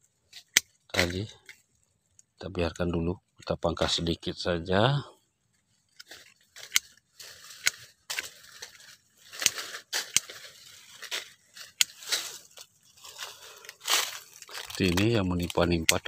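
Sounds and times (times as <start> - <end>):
rustling leaves and branches: 0.0 - 4.1, 5.2 - 16.0
pruning shears snipping twigs: 0.3 - 2.3, 5.9 - 16.0.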